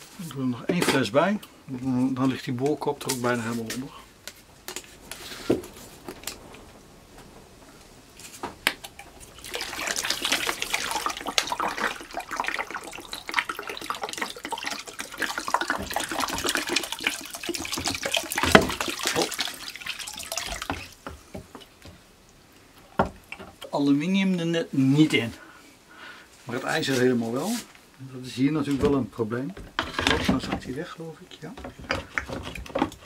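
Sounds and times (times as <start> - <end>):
liquid glugging from plastic bottle: 8.8 - 21.6.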